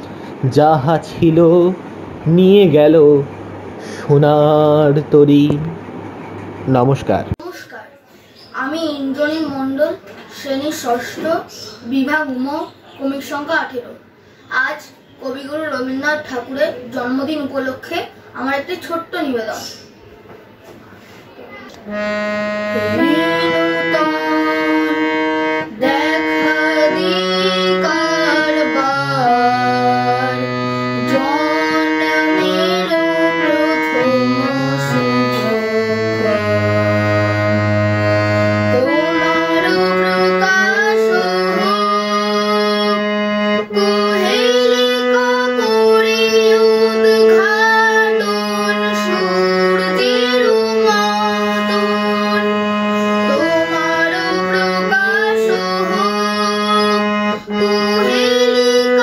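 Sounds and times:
harmonium melody: 0:21.8 - 0:59.0.

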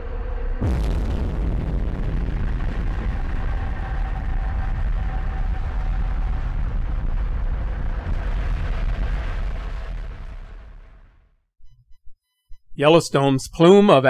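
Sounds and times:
volcanic eruption deep rumble: 0:00.0 - 0:11.2.

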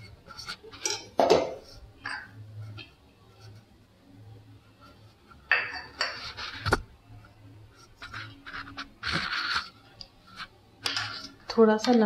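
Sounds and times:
steel bowl clinking on plate: 0:00.8 - 0:02.4, 0:05.5 - 0:06.3.

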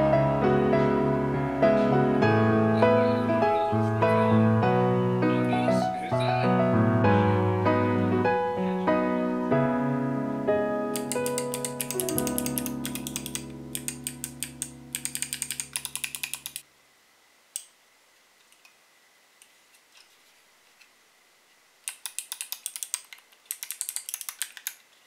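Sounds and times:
soft piano music: 0:00.0 - 0:15.8
mechanical keys clicking: 0:10.9 - 0:16.6, 0:21.9 - 0:24.8.

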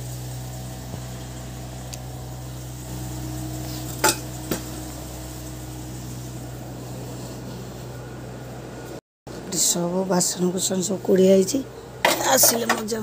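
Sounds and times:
steady low hum: 0:00.0 - 0:12.0
metal utensils clinking: 0:04.0 - 0:04.3, 0:12.0 - 0:13.0.

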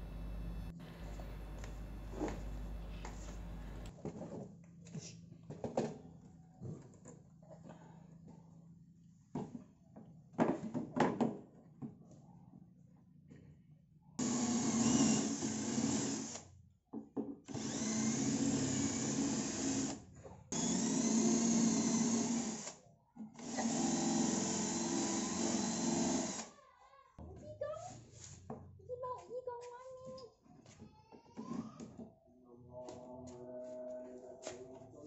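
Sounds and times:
cordless drill running: 0:14.2 - 0:16.4, 0:17.5 - 0:22.8, 0:23.4 - 0:26.5.

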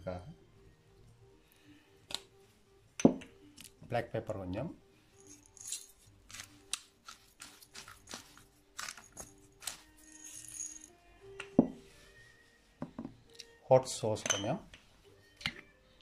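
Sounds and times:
soft background music: 0:00.0 - 0:16.0
spice container tapping and rattling: 0:05.6 - 0:10.8.

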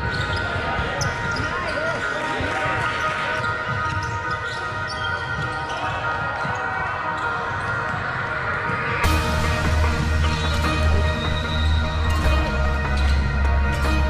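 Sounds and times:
music with heavy bass: 0:09.0 - 0:14.0.

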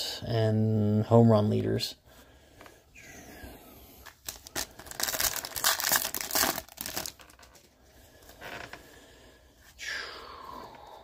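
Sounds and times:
foil wrapper crinkling and tearing: 0:04.0 - 0:07.6.

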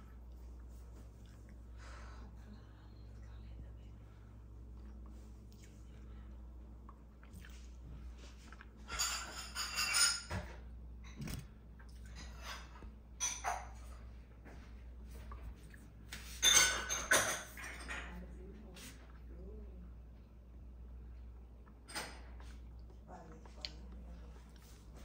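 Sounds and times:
steady low hum: 0:00.0 - 0:25.0
dishes and utensils clinking: 0:08.8 - 0:15.2, 0:16.1 - 0:18.4.

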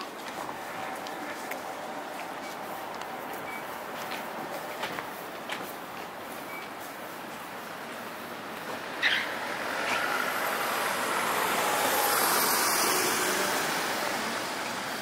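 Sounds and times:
vehicle passing by: 0:08.8 - 0:15.0.

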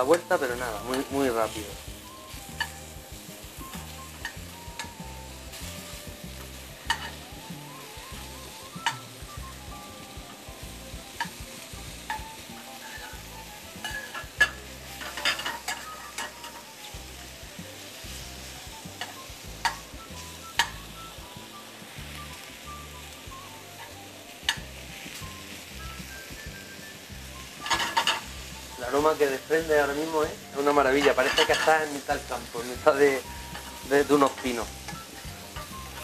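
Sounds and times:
mushrooms sizzling in frying pan: 0:00.0 - 0:36.0
utensil clicking against pan: 0:06.8 - 0:07.2, 0:24.5 - 0:24.7.

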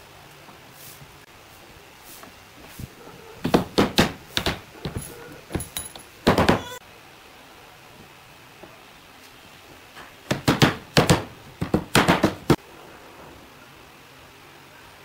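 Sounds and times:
hammer striking chisel: 0:03.5 - 0:06.7, 0:10.3 - 0:12.6.

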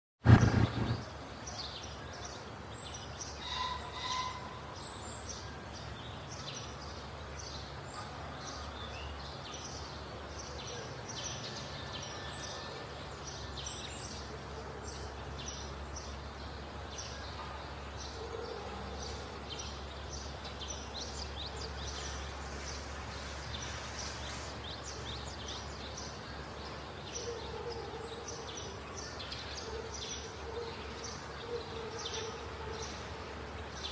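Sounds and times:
small birds chirping: 0:00.3 - 0:33.9
loud bird call: 0:03.4 - 0:05.0.

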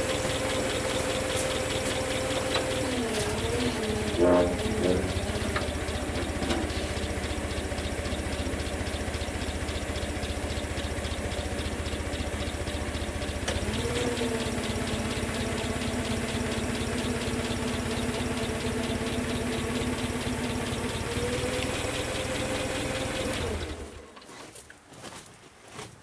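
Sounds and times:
whining tone: 0:00.0 - 0:15.4
truck engine running: 0:00.0 - 0:24.2
loud creak of lifted load: 0:02.6 - 0:07.1.

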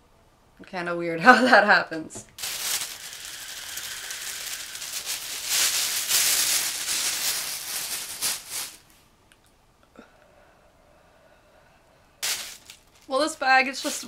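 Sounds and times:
plastic bag crinkling: 0:02.4 - 0:08.9, 0:12.2 - 0:14.0
airy hiss through valve: 0:02.9 - 0:06.8.

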